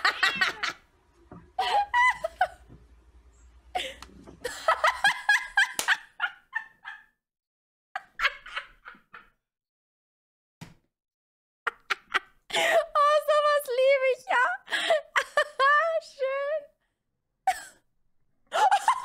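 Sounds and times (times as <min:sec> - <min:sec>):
woman laughing hard: 0:00.0 - 0:00.8, 0:01.6 - 0:02.7, 0:03.8 - 0:07.1, 0:18.5 - 0:19.0.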